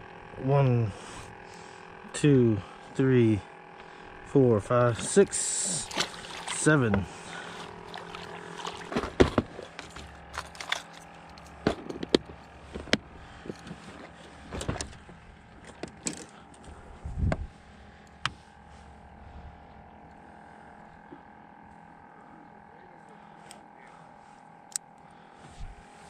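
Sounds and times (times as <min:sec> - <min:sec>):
fishing gear rattling in boat: 0:04.9 - 0:17.5
dull thump: 0:08.8 - 0:09.6.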